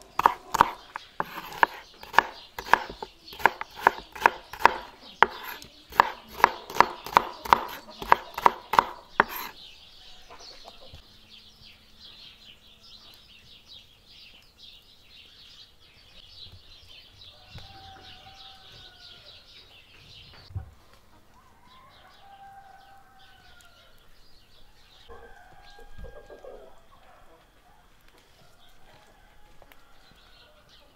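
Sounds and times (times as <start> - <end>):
small birds chirping: 0.0 - 30.9
rooster crowing: 17.3 - 19.5, 21.3 - 24.0, 24.6 - 30.9.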